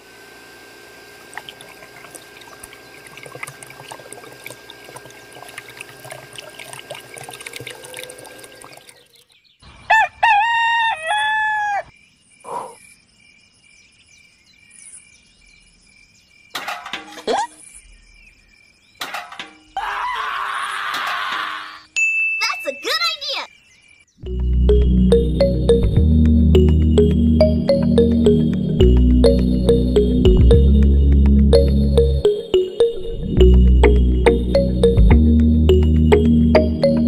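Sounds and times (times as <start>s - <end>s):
rooster crowing: 9.8s - 11.9s.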